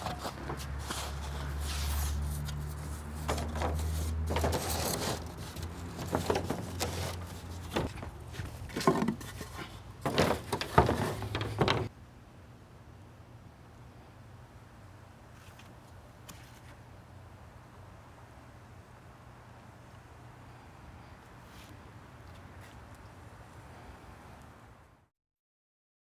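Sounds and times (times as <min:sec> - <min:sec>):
wooden boards knocking together: 0:06.0 - 0:11.9.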